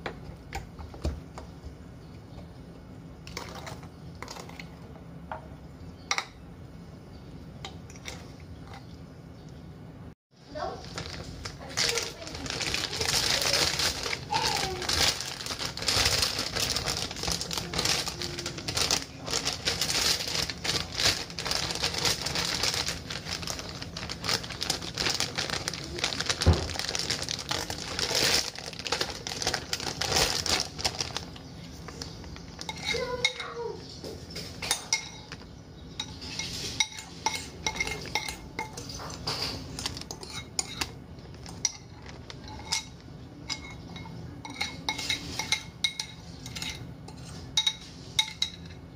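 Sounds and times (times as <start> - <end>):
plastic bag crinkling: 10.5 - 33.3, 38.9 - 43.2
spoon scraping ceramic bowl: 32.6 - 33.4, 36.0 - 40.9, 41.8 - 48.6.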